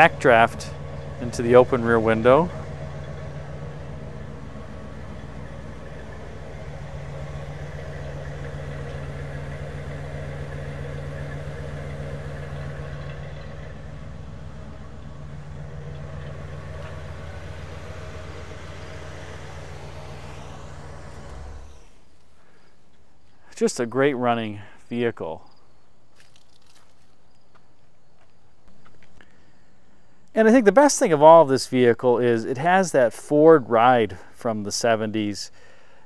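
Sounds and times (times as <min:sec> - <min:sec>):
car engine idling: 0:00.0 - 0:22.7.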